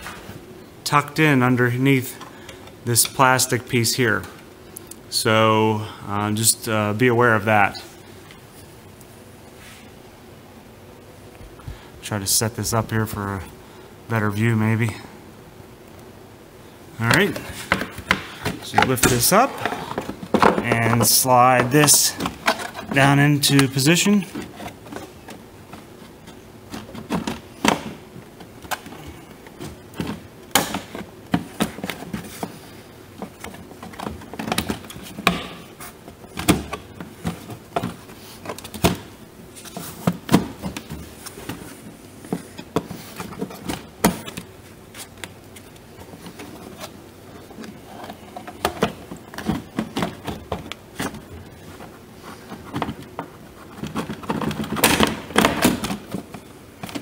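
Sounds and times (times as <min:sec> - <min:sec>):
plastic parts clicking and knocking: 0:17.1 - 0:32.6, 0:33.2 - 0:39.1, 0:45.2 - 0:51.5, 0:52.5 - 0:57.0.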